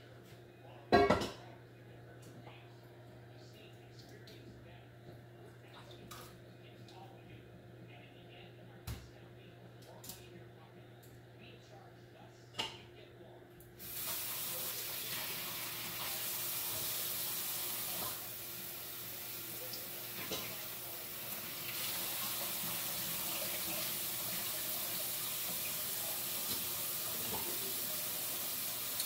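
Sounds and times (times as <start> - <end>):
faucet water running into sink: 13.8 - 29.0.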